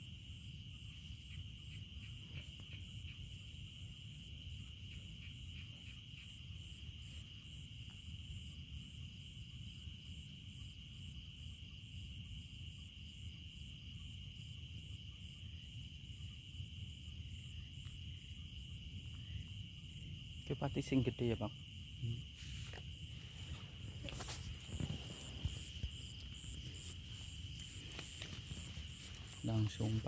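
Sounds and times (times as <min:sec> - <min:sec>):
insect high-pitched trilling: 0:00.0 - 0:09.0, 0:15.0 - 0:30.0
insect pulsing rapidly: 0:22.0 - 0:30.0.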